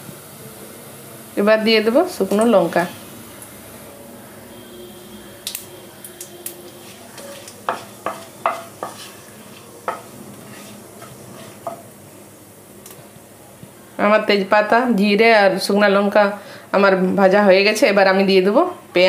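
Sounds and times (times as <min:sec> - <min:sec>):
spices sizzling in hot oil: 0:00.0 - 0:03.8, 0:04.6 - 0:13.4
spatula knocking and scraping pan: 0:06.7 - 0:11.9.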